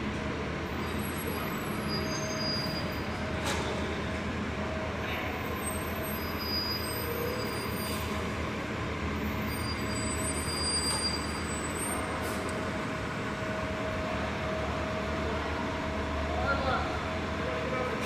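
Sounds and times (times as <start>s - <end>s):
bus engine low rumble: 0.0s - 18.0s.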